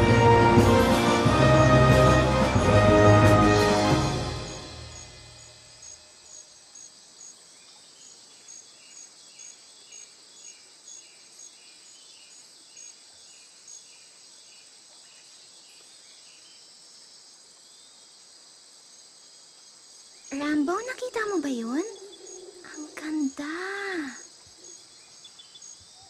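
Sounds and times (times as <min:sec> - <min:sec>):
high insect drone: 0:03.8 - 0:26.0
cricket chirping: 0:04.0 - 0:26.0.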